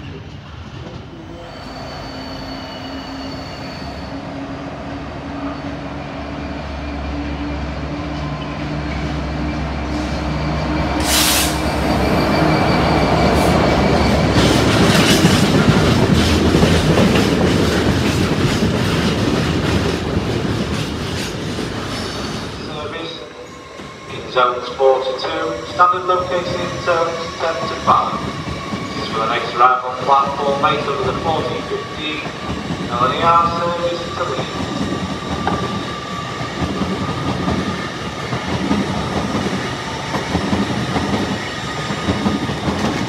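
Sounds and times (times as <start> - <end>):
diesel locomotive engine drone: 0.0 - 20.2
faint wheel squeal: 1.2 - 4.2, 9.9 - 14.3.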